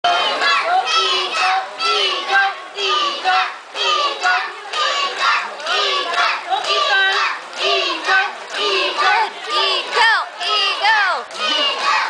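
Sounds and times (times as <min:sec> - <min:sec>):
children shouting and cheering: 0:00.1 - 0:12.0.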